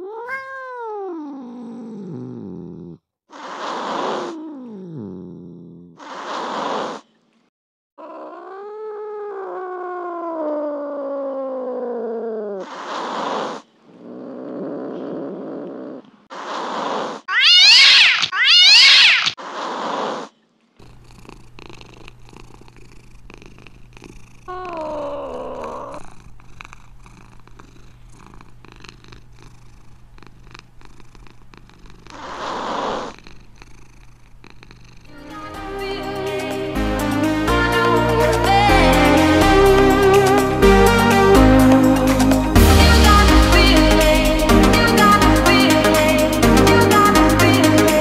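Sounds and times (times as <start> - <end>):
cat meowing: 0.0 - 1.9, 17.3 - 19.4, 24.5 - 26.0
cat yowling: 0.0 - 1.9, 8.0 - 12.7, 17.3 - 19.4, 24.5 - 26.0
cat low rumble: 0.0 - 3.1, 3.9 - 6.0, 8.0 - 16.3, 20.8 - 35.2
cat hissing: 0.0 - 7.1, 8.0 - 20.4, 31.9 - 34.0.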